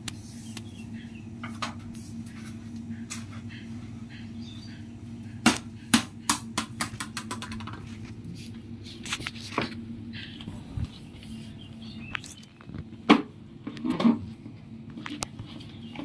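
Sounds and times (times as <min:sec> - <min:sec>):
plastic ball bouncing on concrete: 0:05.4 - 0:08.0.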